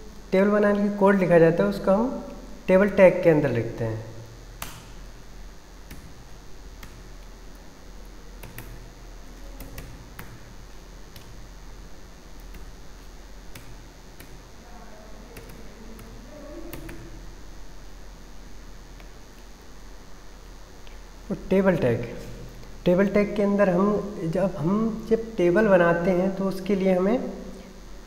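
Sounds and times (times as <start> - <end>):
faint background hiss: 0.0 - 28.0
keyboard keys clicking: 8.4 - 8.8, 9.6 - 10.4, 16.7 - 17.1.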